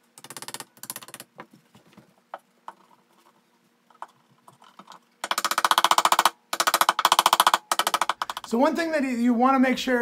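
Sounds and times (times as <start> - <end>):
hammer tapping wooden dowels: 5.2 - 8.8.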